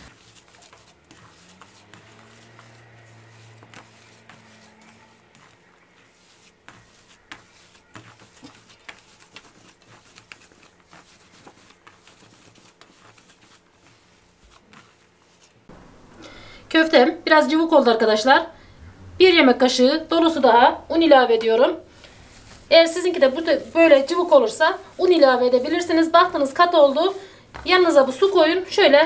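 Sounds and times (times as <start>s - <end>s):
hand kneading food mixture: 0.0s - 29.0s
faint low hum: 15.7s - 29.0s.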